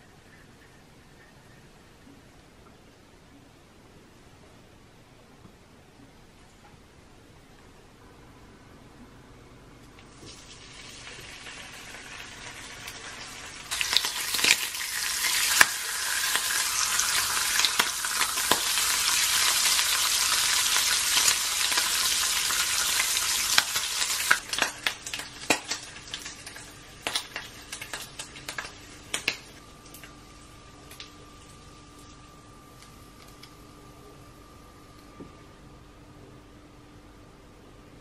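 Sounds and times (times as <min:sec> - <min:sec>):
bacon sizzling in frying pan: 0:10.0 - 0:32.2.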